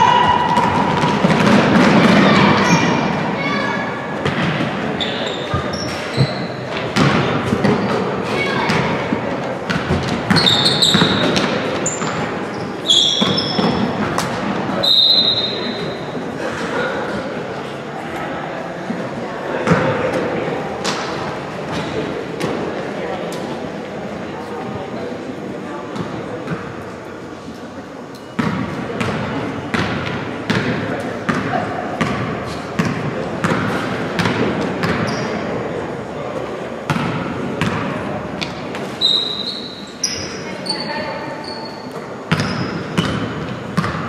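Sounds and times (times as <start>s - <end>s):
sneakers squeaking on gym floor: 0.0s - 9.1s, 9.7s - 16.2s, 32.8s - 35.6s, 38.4s - 44.0s
basketball dribbling thuds: 5.5s - 7.9s
basketball bouncing on wooden floor: 42.3s - 44.0s.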